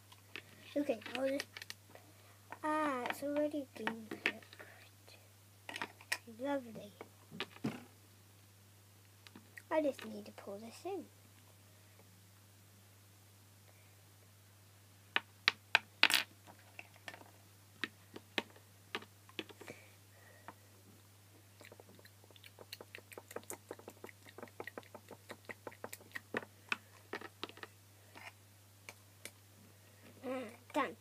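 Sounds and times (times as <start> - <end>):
plastic toys clicking and tapping: 0.3 - 1.8, 15.2 - 19.7, 21.6 - 28.3.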